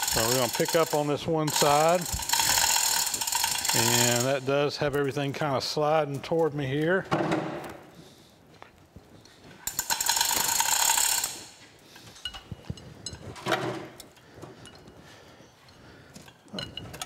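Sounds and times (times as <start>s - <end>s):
hoist chain rattling: 0.0s - 4.5s, 9.6s - 11.6s.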